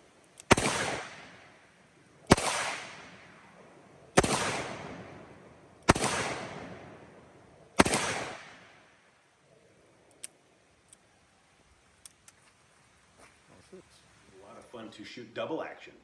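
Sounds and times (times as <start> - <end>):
revolver gunshots with echo: 0.5 - 1.6, 2.3 - 7.1, 7.8 - 8.9.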